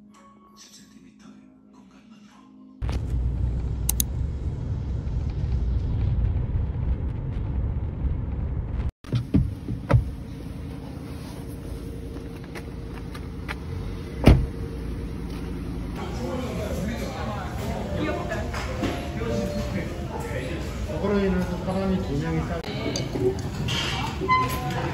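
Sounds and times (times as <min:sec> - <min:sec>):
car cabin road rumble: 0:02.8 - 0:16.0
thumps: 0:09.0 - 0:10.2.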